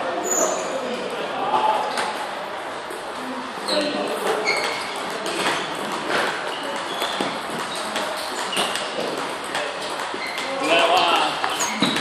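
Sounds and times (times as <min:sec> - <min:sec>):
table tennis balls clicking: 0:04.2 - 0:12.0.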